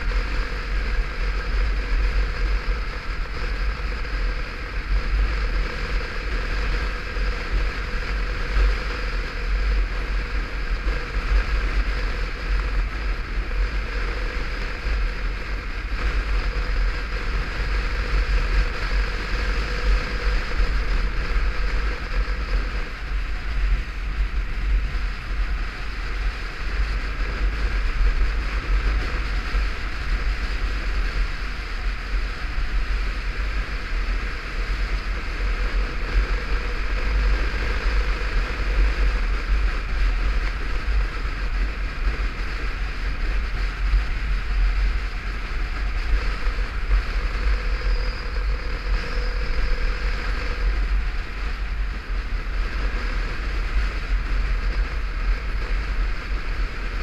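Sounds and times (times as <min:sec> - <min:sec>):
motorcycle engine drone: 0:00.0 - 0:57.0
road noise: 0:00.0 - 0:57.0.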